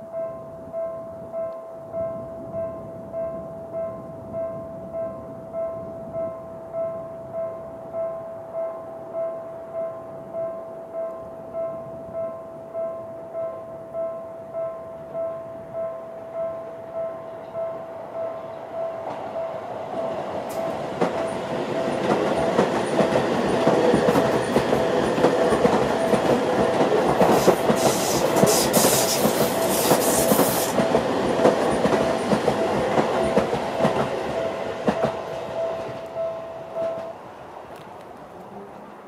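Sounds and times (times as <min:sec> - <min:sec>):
train wheels clattering: 0:20.1 - 0:36.1
train hiss: 0:27.1 - 0:30.9.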